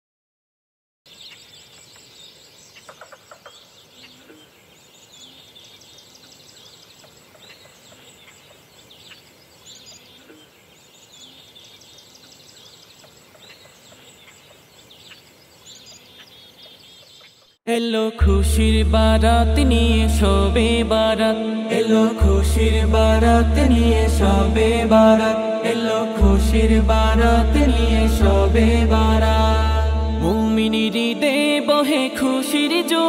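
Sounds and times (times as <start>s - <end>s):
birds chirping and trilling: 1.1s - 17.6s
low short repeating note: 26.2s - 31.0s.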